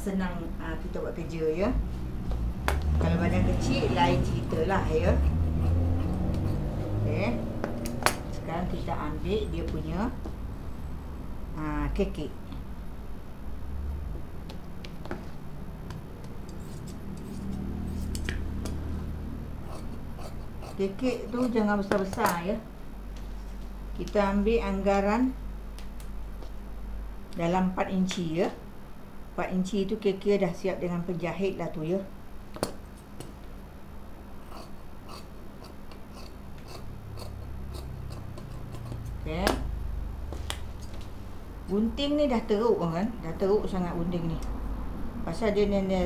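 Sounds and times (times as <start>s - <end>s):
steady low hum: 0.0s - 46.0s
shears snipping cloth: 34.5s - 39.6s.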